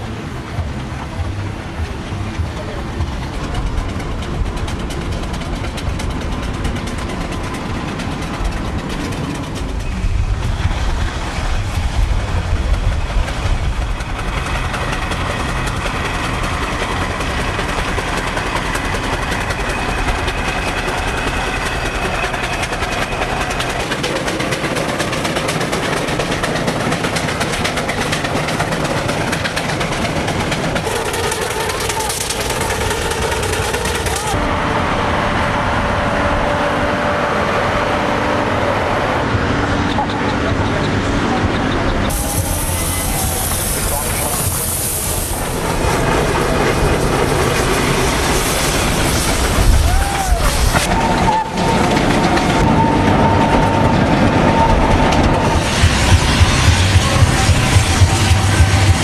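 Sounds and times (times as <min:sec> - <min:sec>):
low rumble: 0:00.0 - 0:20.5, 0:51.8 - 0:59.0
steam engines running: 0:00.0 - 0:59.0.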